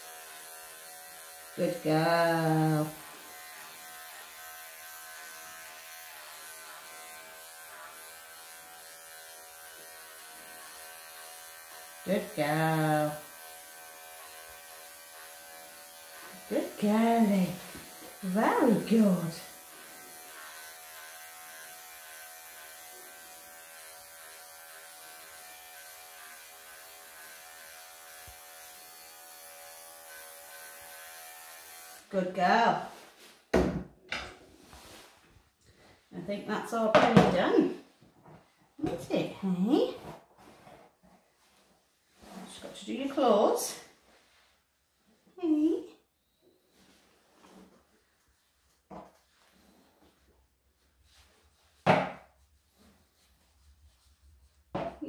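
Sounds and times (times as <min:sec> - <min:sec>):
electric pet clippers buzzing: 0:00.0 - 0:32.1.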